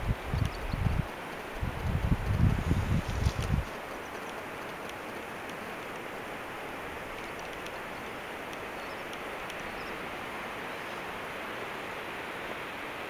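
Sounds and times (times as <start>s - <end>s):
steady hiss: 0.0s - 13.0s
faint high ticks: 0.1s - 10.0s.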